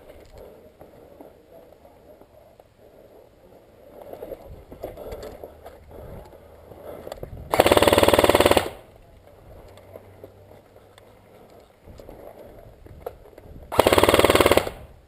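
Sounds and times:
airsoft rifle full-auto burst: 7.5s - 8.9s, 13.7s - 15.0s.

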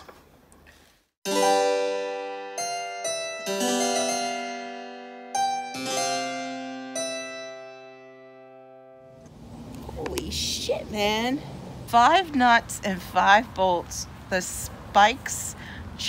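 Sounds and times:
keyboard notes and chords: 1.2s - 9.3s.

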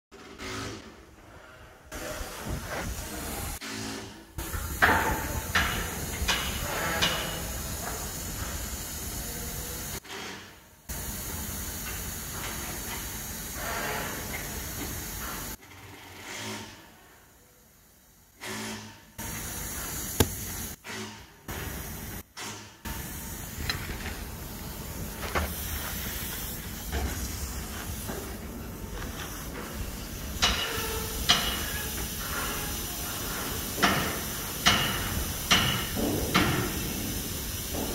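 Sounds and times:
compressed air hissing through hose: 4.4s - 10.1s, 10.9s - 15.6s, 18.0s - 22.2s, 22.9s - 37.9s.

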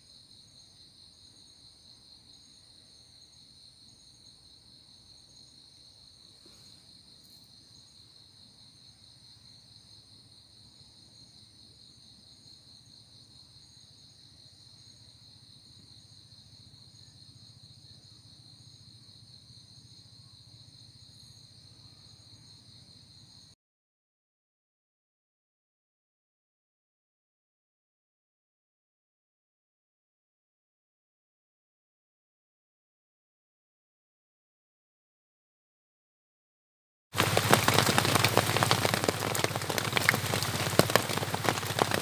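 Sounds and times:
night insects trilling: 0.0s - 23.6s, 37.2s - 42.0s.

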